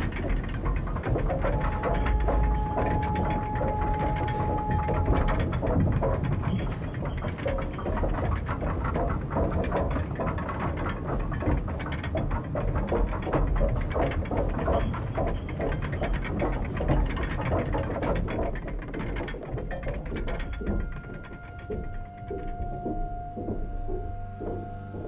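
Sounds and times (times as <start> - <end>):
crackling clatter of machinery: 0.0 - 25.0.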